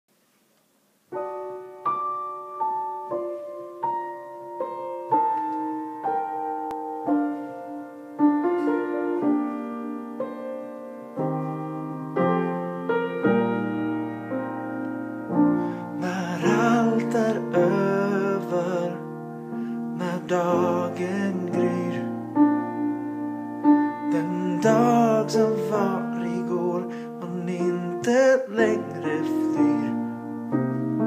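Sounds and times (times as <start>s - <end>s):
slow piano notes and chords: 1.0s - 31.0s
man singing: 15.9s - 19.2s, 19.9s - 22.4s, 24.1s - 30.2s.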